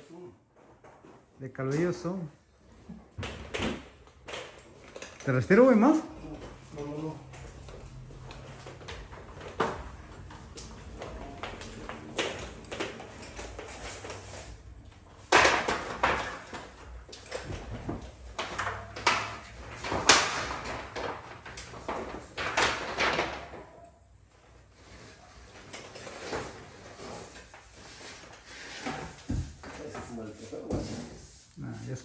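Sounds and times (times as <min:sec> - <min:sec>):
stepladder knocks and clatter: 0:15.2 - 0:23.8.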